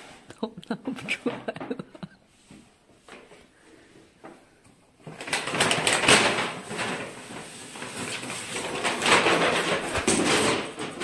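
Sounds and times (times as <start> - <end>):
paper bag rustling: 5.0 - 11.0.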